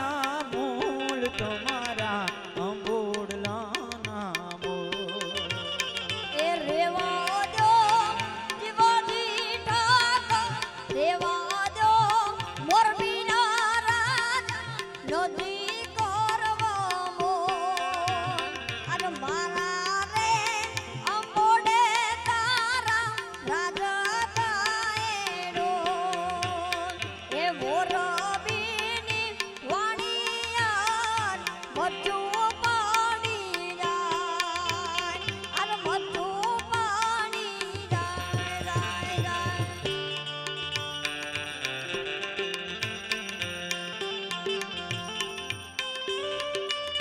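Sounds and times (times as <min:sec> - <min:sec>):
hand drum beat: 0:14.0 - 0:40.2.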